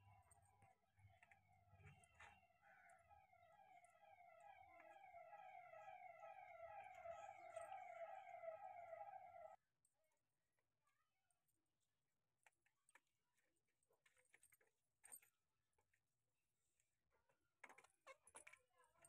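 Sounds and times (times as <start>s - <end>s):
siren wailing: 1.4s - 9.6s.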